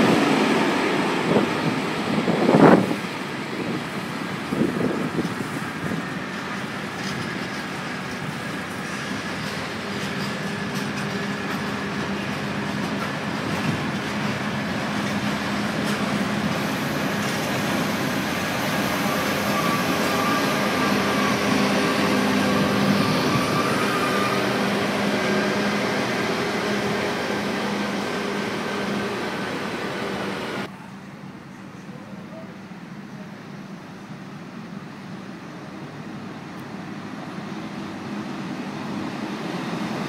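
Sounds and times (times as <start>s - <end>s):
diesel locomotive passing: 0.0s - 40.0s.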